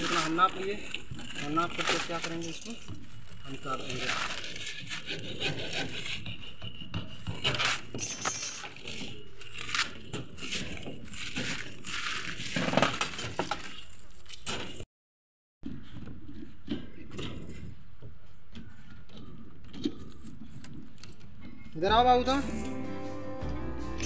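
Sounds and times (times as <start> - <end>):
hacksaw sawing plastic pipe: 0.0 - 8.0.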